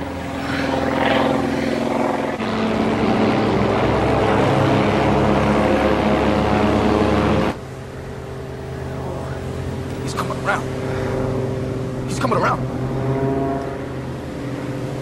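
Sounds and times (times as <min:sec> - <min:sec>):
propeller aircraft engine: 0:00.0 - 0:15.0.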